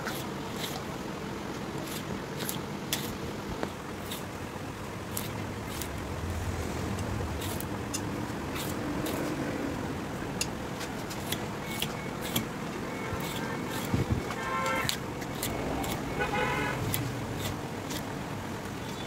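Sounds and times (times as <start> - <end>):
knife cutting rubber tyre: 0.0 - 0.9, 1.7 - 3.2, 4.0 - 4.3, 5.0 - 6.0, 7.0 - 9.4, 10.4 - 19.0
low rumble: 5.3 - 10.0.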